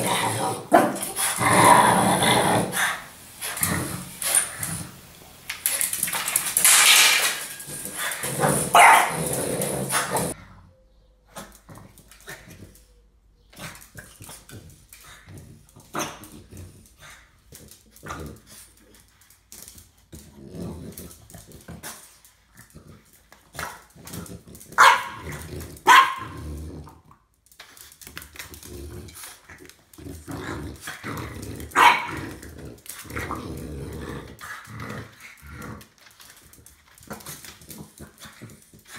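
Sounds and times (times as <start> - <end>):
dogs barking and growling: 0.0 - 12.9, 20.1 - 27.3, 28.4 - 38.9.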